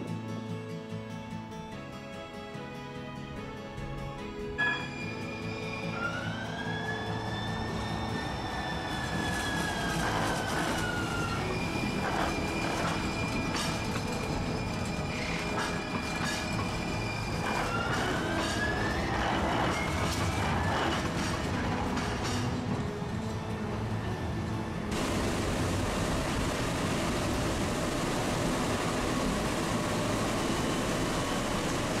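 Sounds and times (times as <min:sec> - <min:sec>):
streetcar rumble: 0:03.7 - 0:32.0
streetcar wheels squealing: 0:04.6 - 0:22.7.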